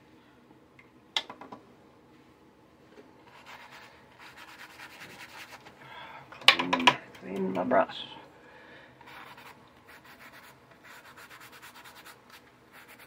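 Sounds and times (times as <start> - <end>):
paintbrush scrubbing on paper: 3.3 - 5.7, 9.1 - 13.0.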